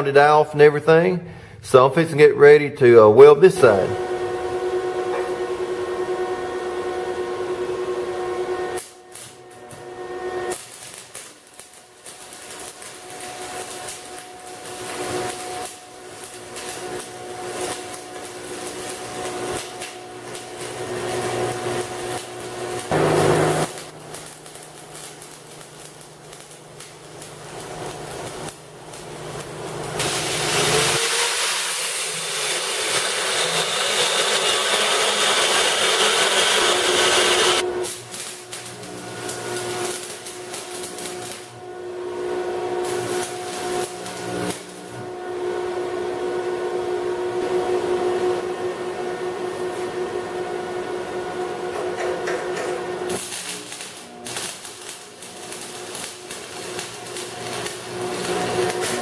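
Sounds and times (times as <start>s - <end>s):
arc welding crackling: 7.6s - 45.2s, 52.2s - 59.0s
angle grinder grinding steel: 20.9s - 24.3s, 30.0s - 37.6s.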